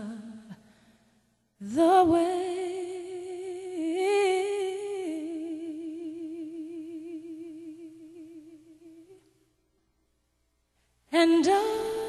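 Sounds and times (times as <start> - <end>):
person singing with vibrato: 0.0 - 0.7, 1.6 - 9.2, 11.1 - 12.0.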